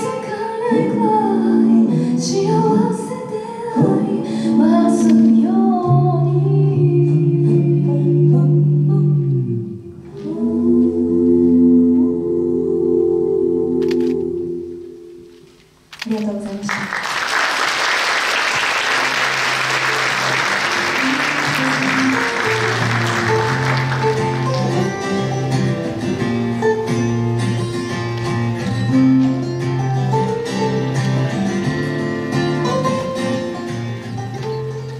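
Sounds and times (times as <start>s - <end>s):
audience applause: 16.7s - 25.4s
instrumental music with bass line: 19.6s - 34.9s.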